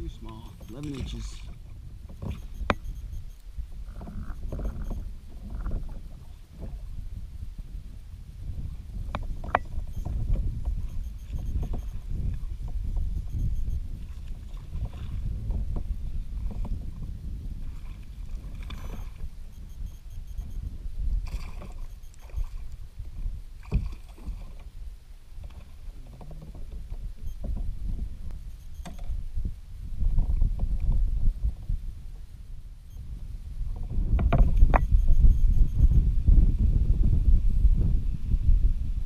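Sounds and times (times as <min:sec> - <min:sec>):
low steady rumble: 0:00.0 - 0:26.0, 0:26.7 - 0:39.0
water sloshing around a kayak: 0:00.0 - 0:35.8
knocks and splashes: 0:23.6 - 0:24.7.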